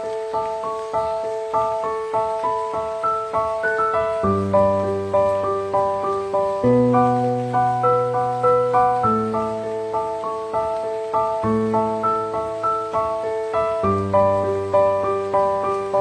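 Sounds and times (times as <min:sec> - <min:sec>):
instrumental keyboard music: 0:00.0 - 0:16.0.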